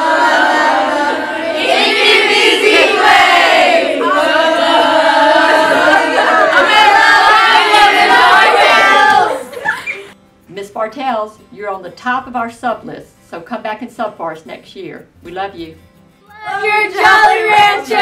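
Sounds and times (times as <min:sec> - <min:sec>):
girls' voices in chorus: 0:00.0 - 0:09.7, 0:16.3 - 0:18.0.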